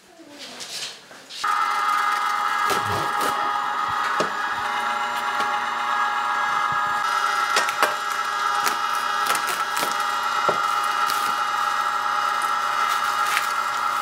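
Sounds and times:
meat grinder motor hum: 1.4s - 14.0s
plastic cling wrap crinkling: 7.2s - 14.0s.

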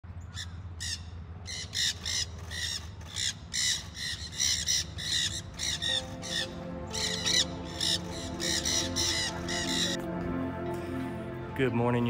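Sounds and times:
parakeets screeching: 0.4s - 10.0s.

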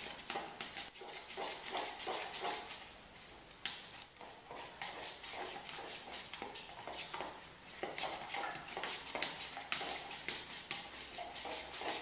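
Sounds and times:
spoon scraping plastic tub: 4.2s - 12.0s.

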